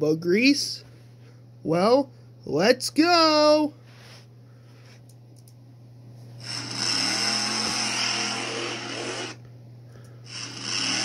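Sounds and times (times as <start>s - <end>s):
person imitating engine noise: 6.4s - 9.4s, 10.3s - 11.0s.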